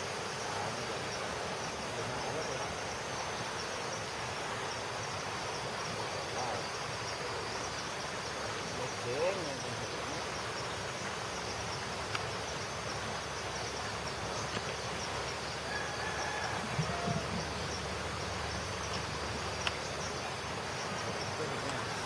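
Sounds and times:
insects chirping: 0.0 - 22.0
stream water rushing: 0.0 - 22.0
faint click: 12.0 - 12.3, 18.9 - 19.8.

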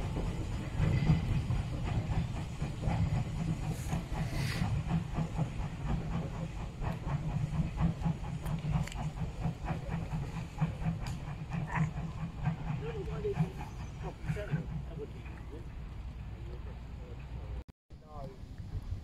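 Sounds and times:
steam hissing: 0.0 - 15.2
steam locomotive chuffing: 0.0 - 17.6.

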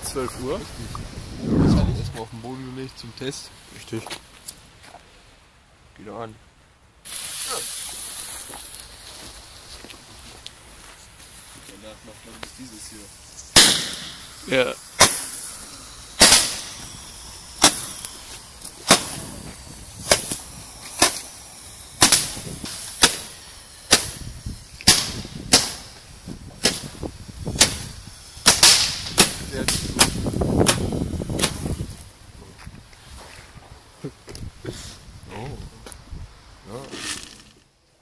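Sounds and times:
firework bangs: 13.5 - 32.0.

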